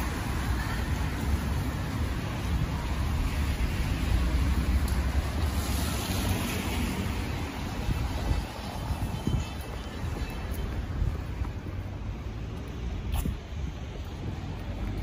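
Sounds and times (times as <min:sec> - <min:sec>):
traffic hiss on wet road: 0:00.0 - 0:09.2
wind rumble on microphone: 0:00.0 - 0:15.0.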